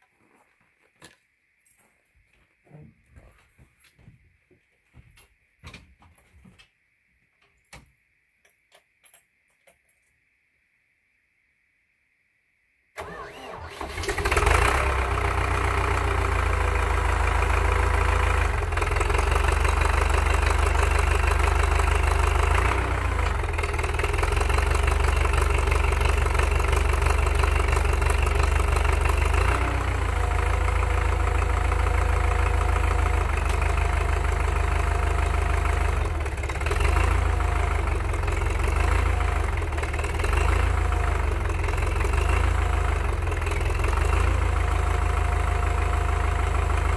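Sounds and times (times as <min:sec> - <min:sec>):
tractor diesel engine running: 0:13.0 - 0:46.9.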